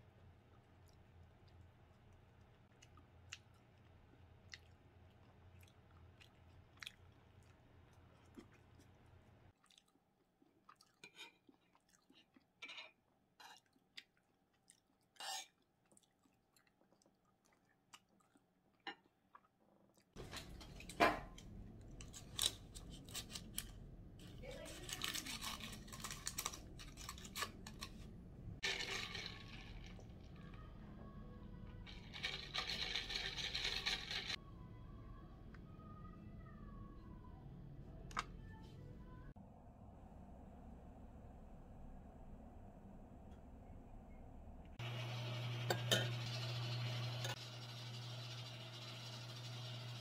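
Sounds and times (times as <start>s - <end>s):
chewing: 0.5s - 12.8s, 13.4s - 20.2s
paper rustling: 24.4s - 28.0s.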